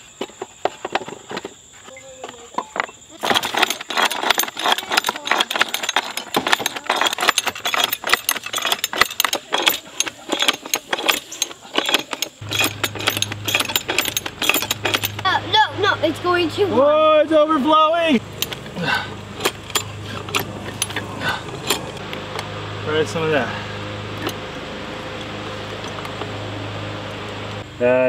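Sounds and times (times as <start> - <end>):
ratchet clicking rapidly: 3.2 - 15.4, 18.2 - 22.0.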